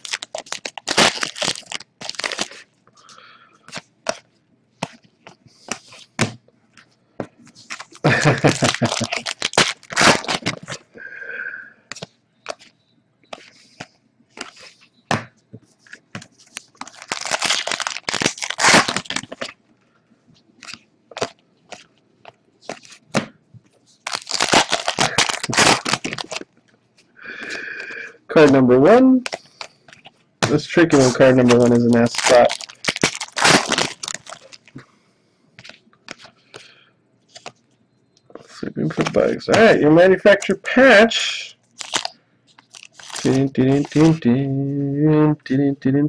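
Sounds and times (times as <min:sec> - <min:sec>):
foil wrappers crinkling and tearing: 0:00.0 - 0:02.7, 0:07.6 - 0:10.8, 0:16.4 - 0:19.6, 0:24.0 - 0:26.5, 0:30.4 - 0:34.7, 0:41.8 - 0:44.2.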